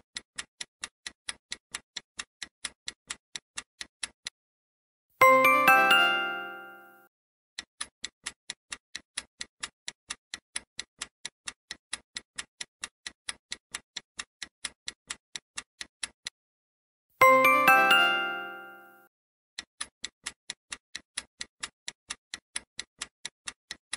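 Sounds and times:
clock-like ticking: 0.0s - 4.4s, 5.2s - 6.9s, 7.6s - 16.4s, 17.2s - 19.0s, 19.6s - 23.9s
bright chime: 5.2s - 7.1s, 17.2s - 19.1s.

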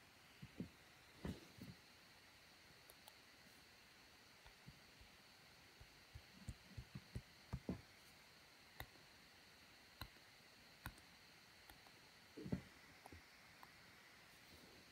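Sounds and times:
faint sharp taps and clicks: 5.8s - 7.8s.

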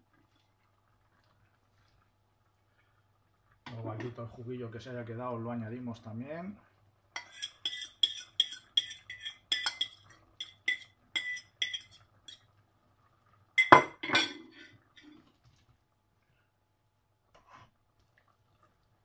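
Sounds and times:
dishware clatter: 7.2s - 12.0s, 13.6s - 15.1s
plate tapping clinks: 8.8s - 11.9s, 13.6s - 14.5s.

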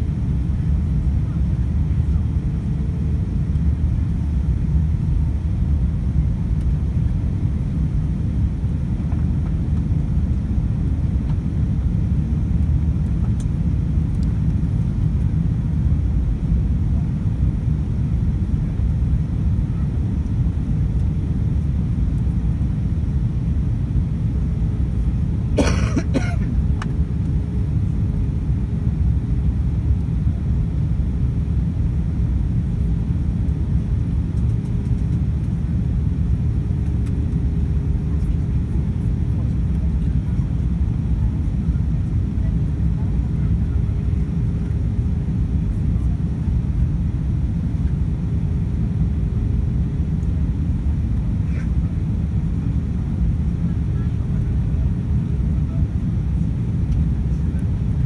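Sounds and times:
aircraft cabin engine rumble: 0.0s - 58.0s
person coughing: 25.6s - 26.5s.

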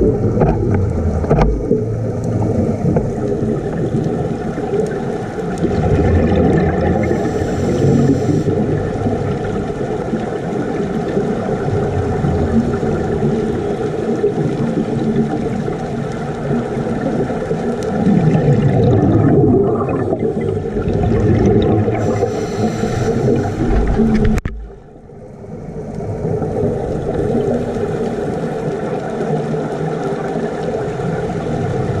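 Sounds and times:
underwater bubbles gurgling: 0.0s - 32.0s
short hiss: 22.0s - 23.8s.

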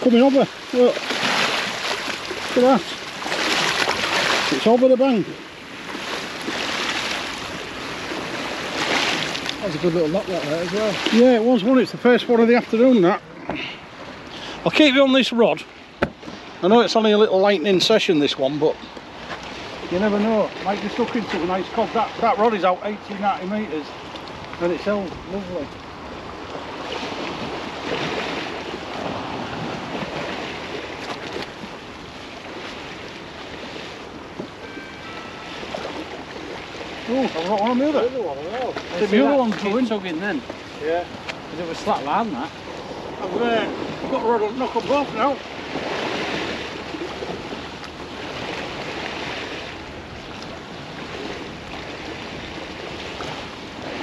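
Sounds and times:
water lapping: 0.0s - 54.0s
waves washing against bank: 0.0s - 54.0s
wind buffeting microphone: 18.8s - 54.0s.

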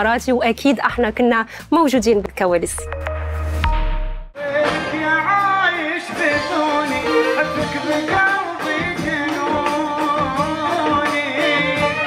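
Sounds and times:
steady percussion beat: 2.7s - 5.0s.

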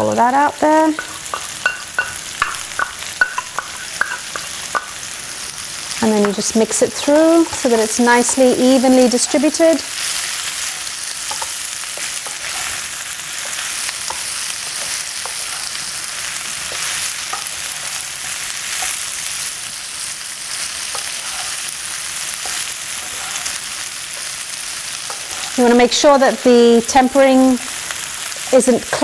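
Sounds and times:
potatoes sizzling in oil: 0.0s - 29.0s
spatula scraping a pan: 6.2s - 19.8s, 20.4s - 25.9s.

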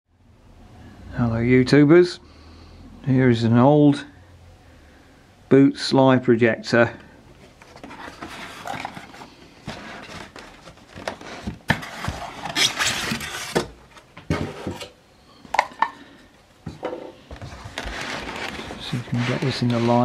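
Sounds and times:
foam scraping against cardboard: 17.7s - 20.0s.

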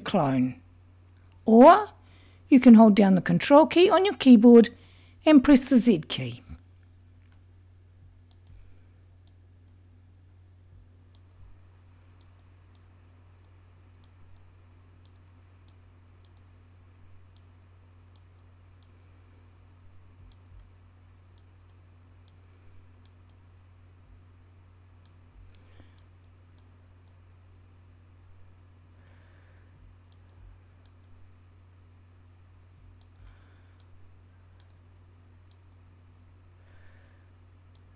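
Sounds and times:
low hum: 4.6s - 37.9s
computer mouse clicks: 8.3s - 8.6s, 12.2s - 16.5s, 18.1s - 19.0s, 30.1s - 31.2s, 32.9s - 34.0s, 34.6s - 34.8s.

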